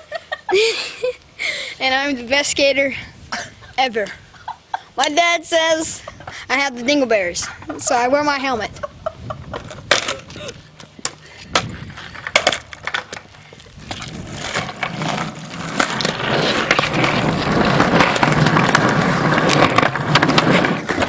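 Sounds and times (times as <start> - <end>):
skateboard wheels rolling on pavement: 3.7 - 21.0
skateboard knocking: 9.3 - 21.0.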